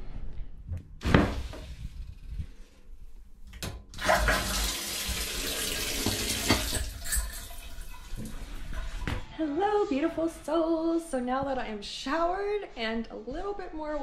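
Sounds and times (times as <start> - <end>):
shower water splashing on tiles: 4.0 - 9.0.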